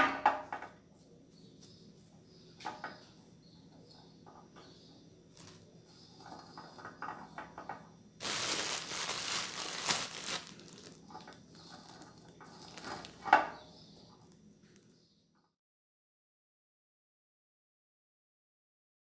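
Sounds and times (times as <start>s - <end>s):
plastic bag crinkling: 5.4s - 5.6s, 8.2s - 13.2s.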